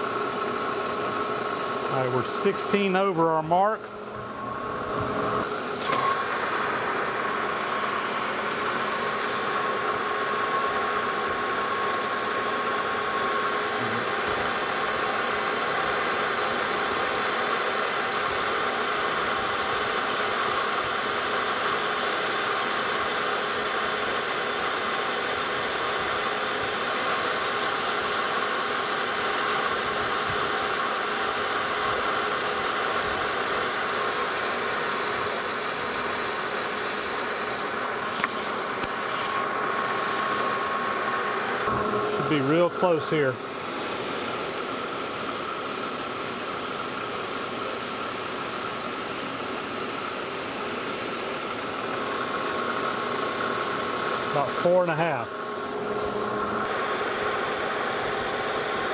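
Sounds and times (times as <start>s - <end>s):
metal lathe running: 0.0s - 58.9s
mist coolant sprayer hissing: 0.0s - 58.9s.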